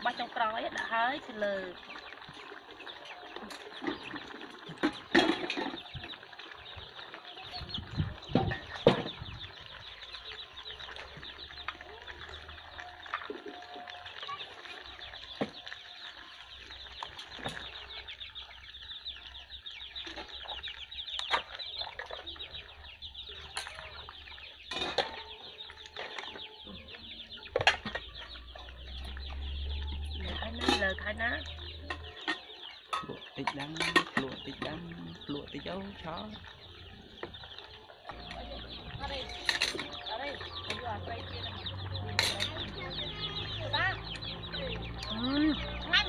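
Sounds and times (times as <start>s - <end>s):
soup bubbling at a rolling boil: 0.0s - 46.0s
metal ladle scraping a pot: 23.4s - 26.9s, 30.2s - 34.8s, 37.2s - 40.9s, 41.5s - 43.4s.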